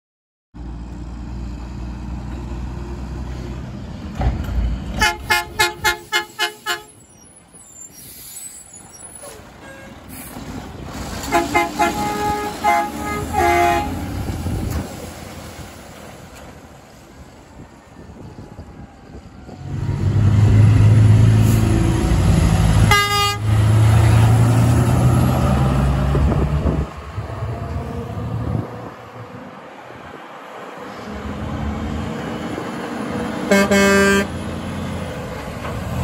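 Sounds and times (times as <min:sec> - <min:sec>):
truck air horn toots: 0:05.0 - 0:07.1, 0:09.2 - 0:10.3, 0:11.2 - 0:14.2, 0:22.7 - 0:24.2, 0:33.5 - 0:34.4.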